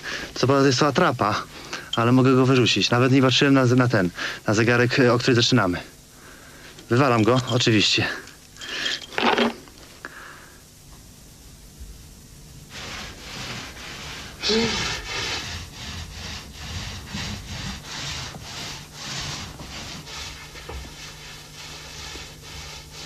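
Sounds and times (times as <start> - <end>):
paint roller rubbing on wall: 12.7 - 23.0.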